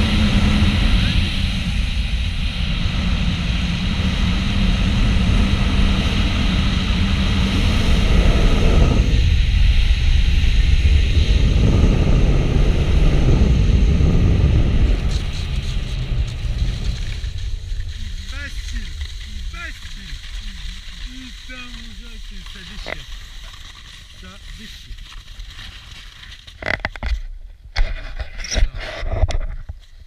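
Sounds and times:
wind buffeting microphone: 0.0s - 23.3s.

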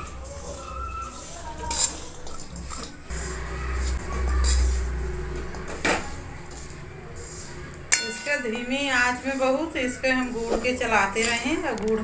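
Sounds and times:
sharp metal clank: 7.9s - 8.5s.

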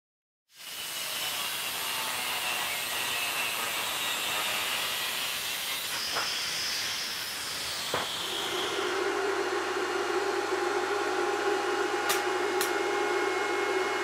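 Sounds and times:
angle grinder cutting metal: 0.5s - 10.6s.

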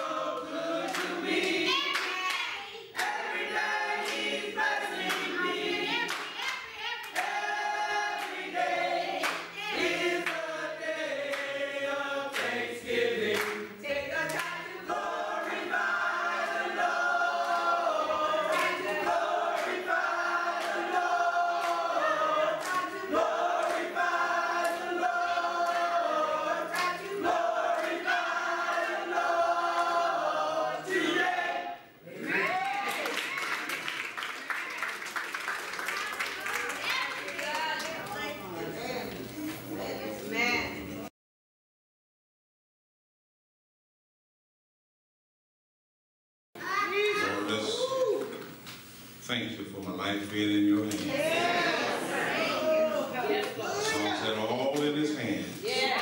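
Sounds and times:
choir singing gospel song: 0.0s - 32.5s, 51.0s - 56.0s
handclaps: 0.4s - 3.2s, 6.0s - 7.4s, 9.2s - 9.6s, 11.3s - 11.5s, 12.3s - 12.6s, 13.3s - 13.6s, 18.5s - 19.8s, 23.6s - 23.9s, 26.7s - 27.0s, 32.7s - 38.2s.

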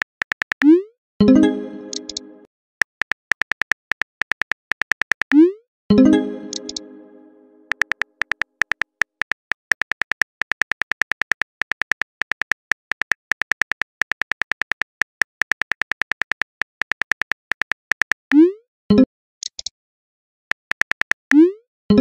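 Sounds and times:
phone keyboard typing clicks: 1.7s - 2.3s, 2.9s - 5.4s, 6.4s - 6.9s, 7.7s - 18.2s, 20.5s - 21.4s.

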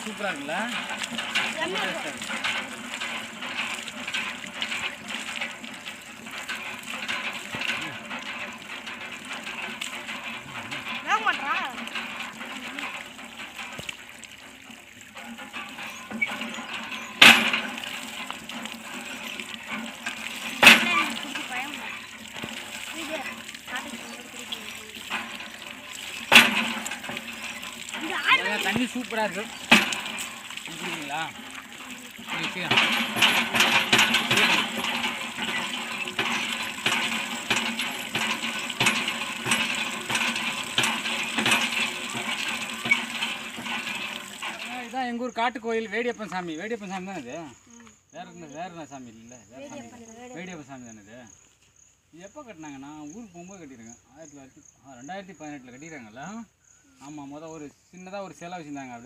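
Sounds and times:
hand pump being worked: 0.0s - 45.5s
water running from spout: 0.0s - 51.2s, 52.4s - 53.9s
metallic clank of pump handle: 0.1s - 14.0s, 15.1s - 45.0s.

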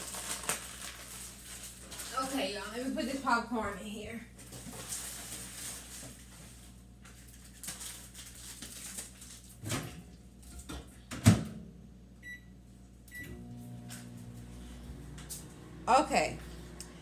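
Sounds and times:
microwave humming: 9.0s - 17.0s.

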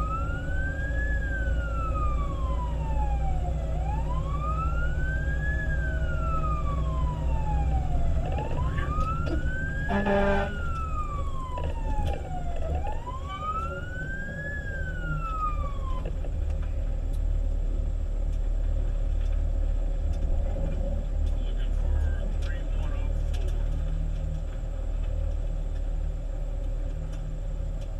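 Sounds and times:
fire engine siren wailing: 0.0s - 16.2s
truck engine rumble: 0.0s - 27.9s
horn blast: 9.9s - 10.6s.

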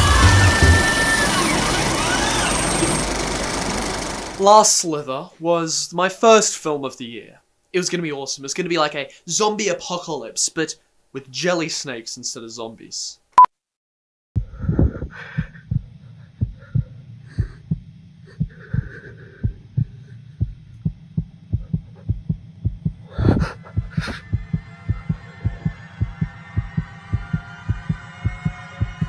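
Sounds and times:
held chord: 0.0s - 2.0s
heartbeat thumps: 14.4s - 29.0s.

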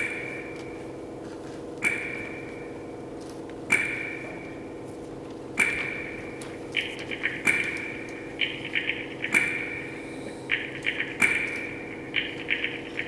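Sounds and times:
ringing metallic pings: 1.8s - 3.0s, 3.7s - 4.7s.

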